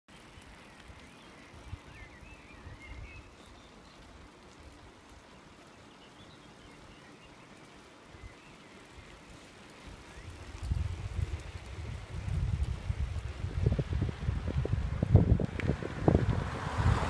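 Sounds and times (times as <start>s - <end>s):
bicycle tyres crunching on gravel: 0.1s - 17.0s
wind on microphone: 9.9s - 17.0s.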